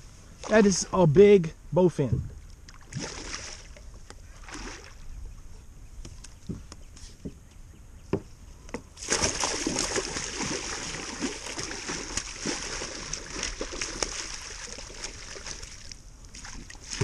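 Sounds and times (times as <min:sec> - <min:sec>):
fish splashing at water surface: 0:09.0 - 0:17.0.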